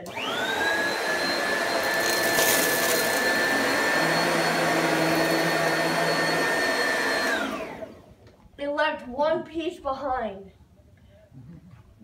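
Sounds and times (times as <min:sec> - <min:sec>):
vacuum cleaner running: 0:00.0 - 0:08.2.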